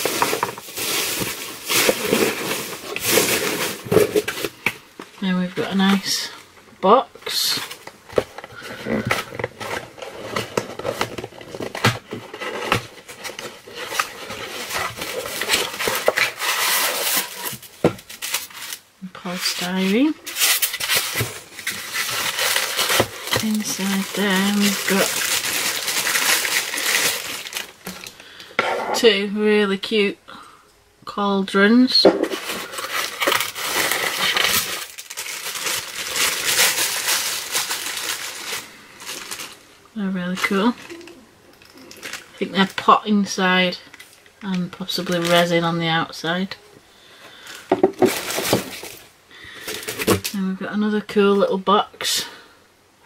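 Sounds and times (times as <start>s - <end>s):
packaging rustling: 0.0s - 5.2s, 7.6s - 28.3s, 32.2s - 39.8s, 40.4s - 42.4s, 47.4s - 50.4s.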